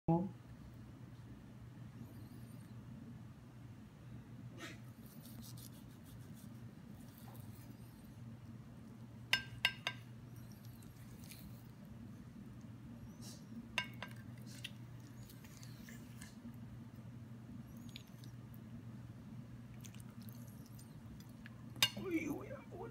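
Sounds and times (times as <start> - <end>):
metal clinking on ceramic plate: 9.4 - 10.0, 13.8 - 14.2
knife and fork cutting steak: 9.4 - 11.8, 13.8 - 16.4.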